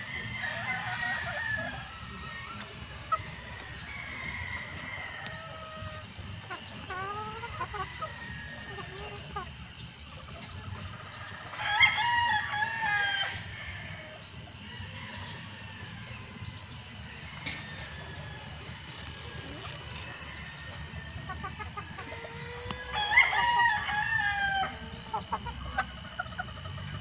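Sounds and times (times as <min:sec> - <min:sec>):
rooster crowing: 0:00.0 - 0:02.0, 0:22.0 - 0:25.2
hens clucking: 0:00.0 - 0:27.0.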